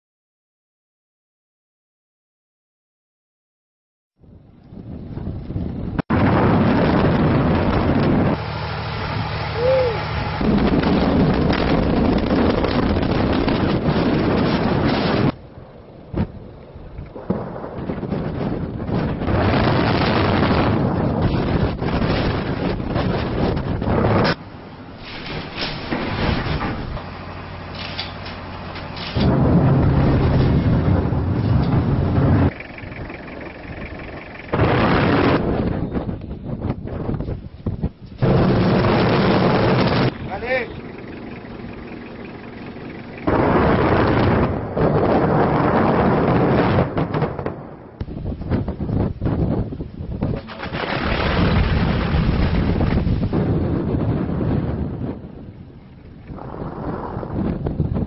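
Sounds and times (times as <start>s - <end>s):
mine blast rumble: 5.0s - 15.4s, 16.0s - 37.2s, 38.2s - 55.5s
rising and falling tone: 6.8s - 12.1s.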